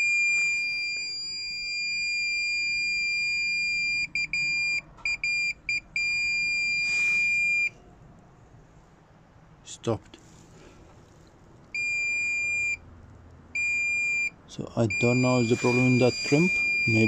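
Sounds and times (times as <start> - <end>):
multimeter continuity beep: 0.0 - 7.8, 11.8 - 12.8, 13.6 - 17.0.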